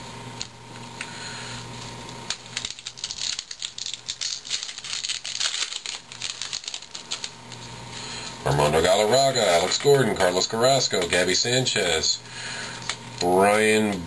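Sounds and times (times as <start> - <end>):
paper cards flipped by hand: 1.8 - 7.7.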